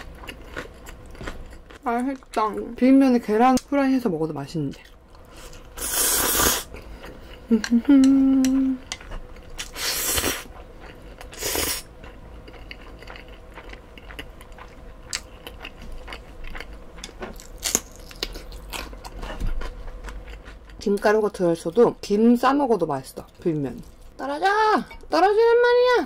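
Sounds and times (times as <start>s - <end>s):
wet chewing: 4.7s - 20.9s
person humming: 7.5s - 8.8s.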